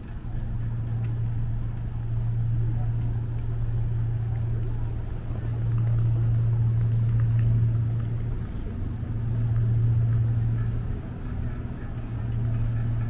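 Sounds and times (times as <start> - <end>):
ferry engine droning: 0.0 - 13.0.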